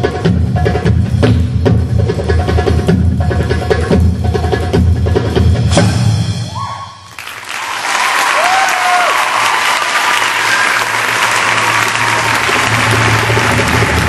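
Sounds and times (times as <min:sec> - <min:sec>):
hand drums: 0:00.0 - 0:06.6, 0:11.2 - 0:14.0
audience applause: 0:07.1 - 0:14.0.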